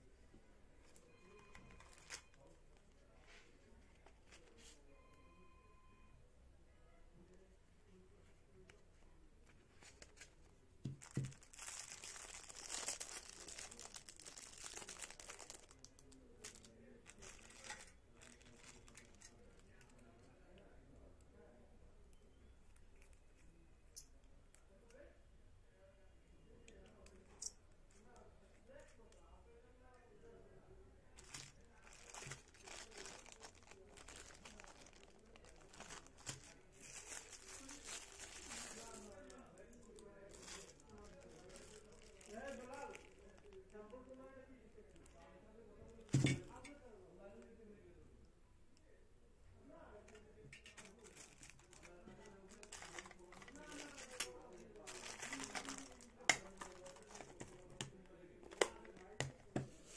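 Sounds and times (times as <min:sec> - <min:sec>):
small items clicking and rustling: 0:00.8 - 0:02.5, 0:09.8 - 0:20.0, 0:31.2 - 0:43.6, 0:46.0 - 0:46.7, 0:50.5 - 0:59.9
plastic bag crinkling: 0:01.5 - 0:02.5, 0:10.9 - 0:19.7, 0:31.2 - 0:43.8, 0:50.6 - 0:59.9.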